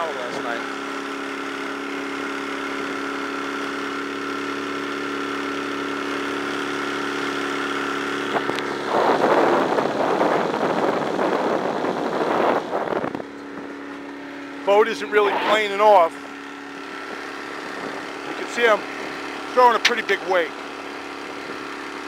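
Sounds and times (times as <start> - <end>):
outboard engine running: 0.0 - 22.0
rushing noise over microphone: 8.3 - 19.4.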